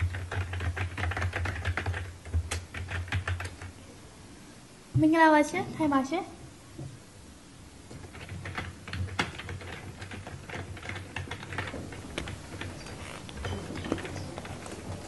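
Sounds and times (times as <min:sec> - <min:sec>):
computer keyboard typing: 0:00.0 - 0:03.7, 0:08.0 - 0:15.0.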